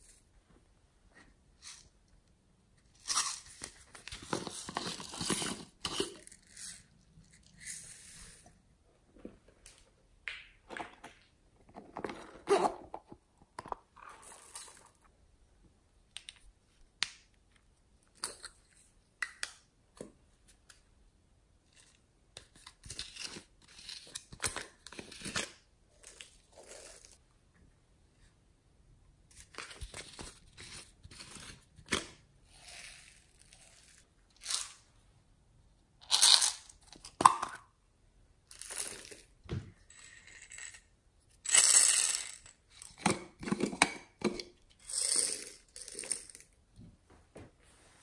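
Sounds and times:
plastic lids twisted and popped: 42.9 - 44.6.

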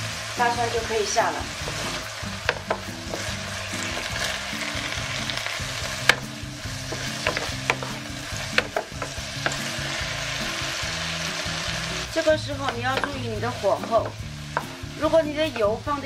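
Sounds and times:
food sizzling in frying pan: 0.0 - 16.0
wooden spatula knocking and scraping pan: 1.5 - 10.3, 12.4 - 16.0.

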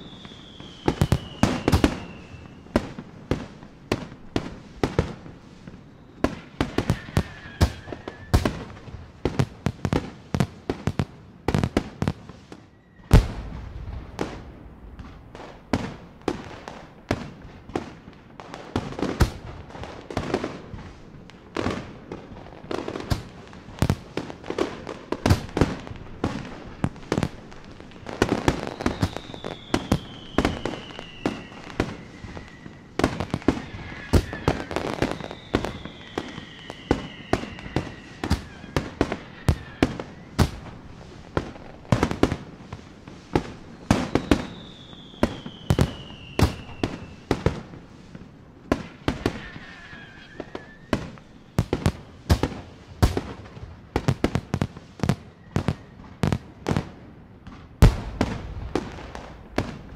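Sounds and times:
firework whistles falling in pitch: 0.0 - 3.0, 5.6 - 8.9, 12.5 - 14.4, 28.0 - 41.7, 43.4 - 47.7, 48.8 - 53.3, 55.0 - 56.4
fireworks bursting with sharp bangs: 0.0 - 59.9.

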